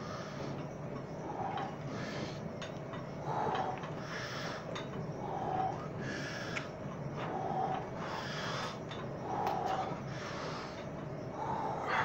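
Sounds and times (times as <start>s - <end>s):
man breathing heavily: 0.0s - 12.0s.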